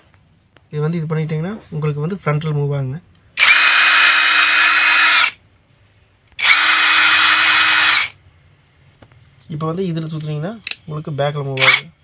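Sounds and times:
impact wrench motor whirring: 0:03.4 - 0:05.4, 0:06.4 - 0:08.2.

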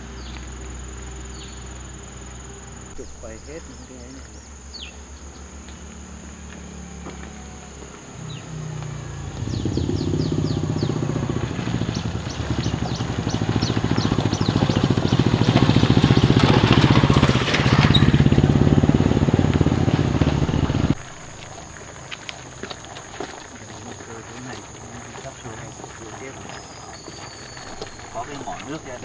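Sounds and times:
vehicle engine running: 0:00.0 - 0:29.0.

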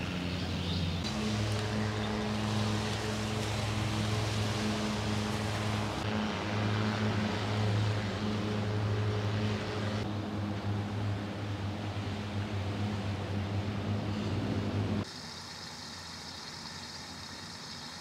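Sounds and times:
engine droning hum: 0:00.0 - 0:18.0
hiss of noise: 0:01.1 - 0:06.1.

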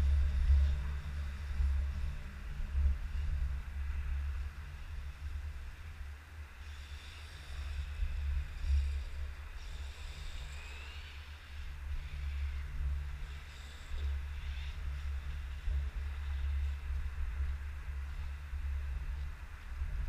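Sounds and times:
wind buffeting microphone: 0:00.0 - 0:06.6, 0:07.5 - 0:20.0
high whine of rc car motors: 0:06.6 - 0:16.9.

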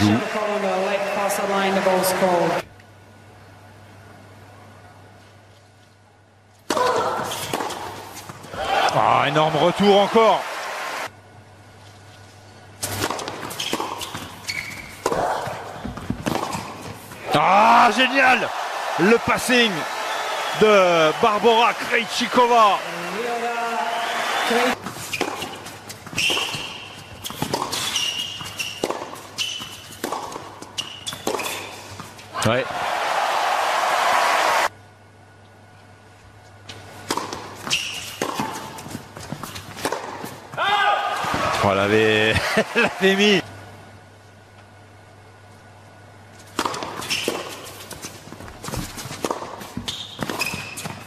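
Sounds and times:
racket striking tennis ball: 0:06.7 - 0:08.1, 0:12.8 - 0:14.4, 0:15.0 - 0:17.0, 0:25.1 - 0:31.7, 0:37.0 - 0:40.4, 0:46.5 - 0:47.8, 0:48.7 - 0:51.0
shoes squeaking on court: 0:12.0 - 0:17.1, 0:24.8 - 0:32.3, 0:36.4 - 0:40.6, 0:46.4 - 0:51.0.

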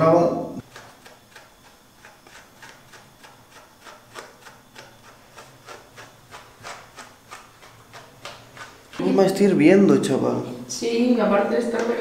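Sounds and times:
brush raking through wet fur: 0:00.6 - 0:09.4.

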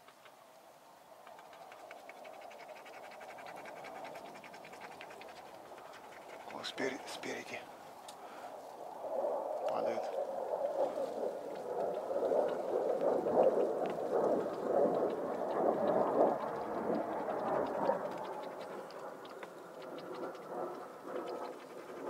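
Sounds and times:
leafy branches rustling: 0:06.6 - 0:13.1.

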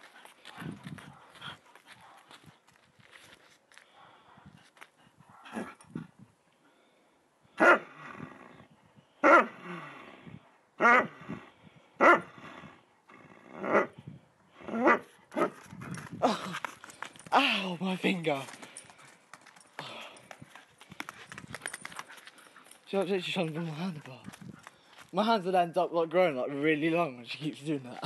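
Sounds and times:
dog growling barks: 0:05.3 - 0:05.9, 0:07.6 - 0:10.2, 0:10.8 - 0:14.0, 0:14.6 - 0:16.0.

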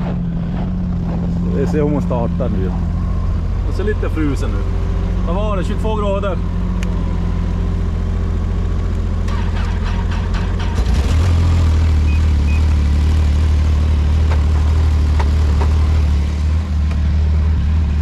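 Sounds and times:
snowmobile engine idling: 0:00.0 - 0:10.5.

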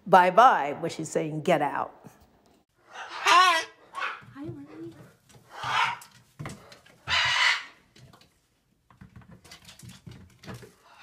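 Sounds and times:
parrot squawking harshly: 0:02.9 - 0:04.2, 0:05.5 - 0:06.1, 0:07.1 - 0:07.8.

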